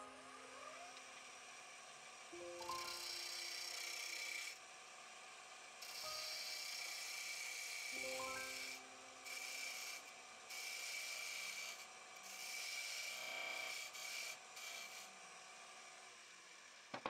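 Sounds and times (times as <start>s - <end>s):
steady high tone: 0.0s - 1.0s, 8.0s - 9.3s
gouge rasping on spinning wood: 2.7s - 4.6s, 5.8s - 15.1s.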